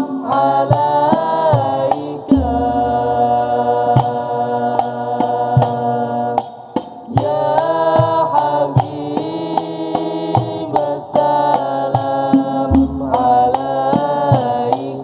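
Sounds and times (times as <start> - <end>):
young men singing together: 0.0 - 15.0
frame drums beating: 0.8 - 6.0, 11.6 - 15.0
deep drum tone: 2.3 - 4.3, 12.6 - 13.9.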